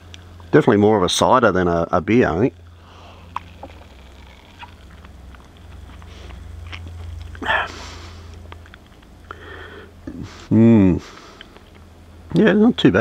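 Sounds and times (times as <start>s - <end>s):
steady low hum: 0.0s - 13.0s
man sipping and swallowing: 3.0s - 9.4s.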